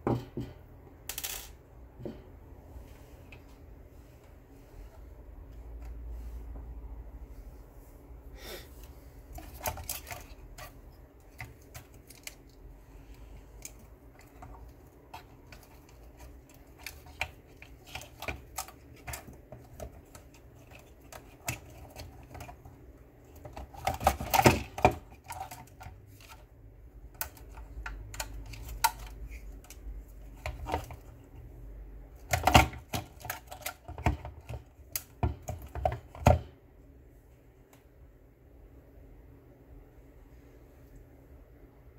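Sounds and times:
plastic parts clicking and rattling: 0.0 - 2.2, 9.3 - 31.4, 32.1 - 36.5.

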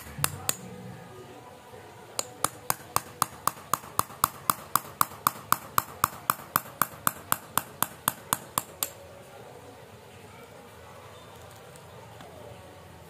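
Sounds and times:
hammer tapping metal: 0.0 - 0.8, 2.2 - 9.0.

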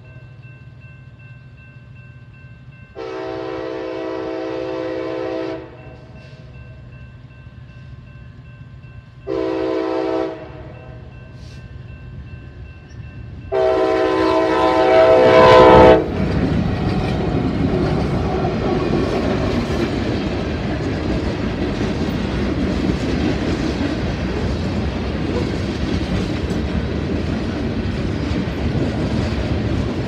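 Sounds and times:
train rolling rumble: 0.0 - 30.0
locomotive air horn: 3.0 - 5.9, 9.3 - 11.6, 13.5 - 16.1.

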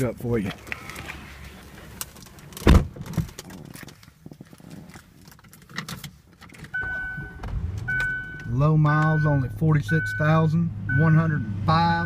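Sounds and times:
car door shutting: 6.7 - 8.5
electronic warning chime: 6.8 - 11.5.

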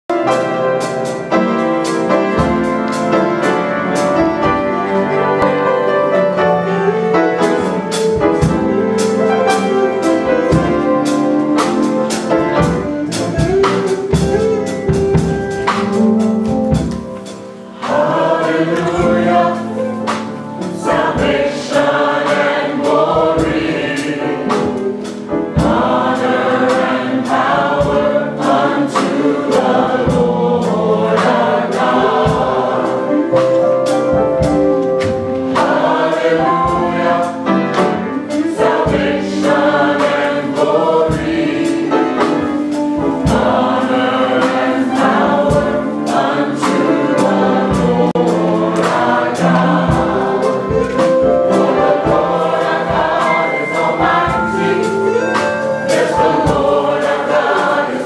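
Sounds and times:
choir singing in harmony: 0.1 - 58.0
sharp regular beat: 7.6 - 58.0.

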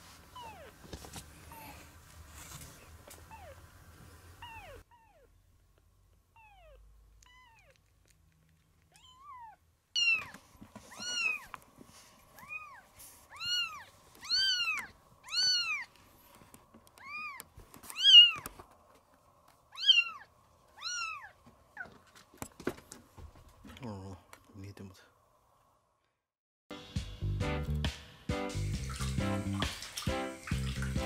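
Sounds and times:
kitten mewing: 6.4 - 7.9, 8.9 - 10.3.

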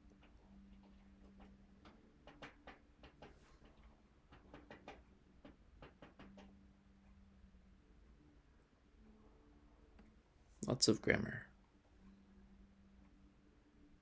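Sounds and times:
faint irregular clicks: 0.0 - 7.4
faint low hum: 0.0 - 14.0.

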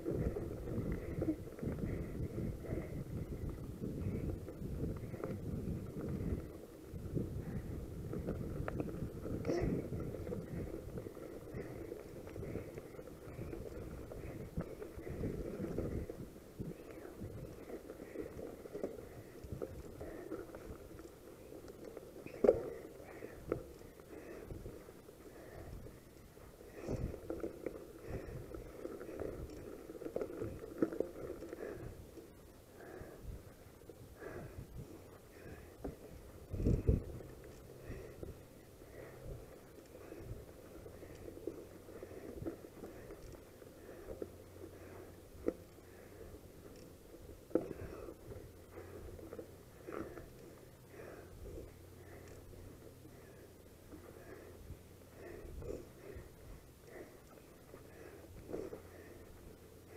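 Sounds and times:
wind on microphone: 0.0 - 18.2, 34.1 - 41.1
bike rattling: 0.0 - 59.9
bike tyres rumbling on gravel: 0.0 - 59.9.

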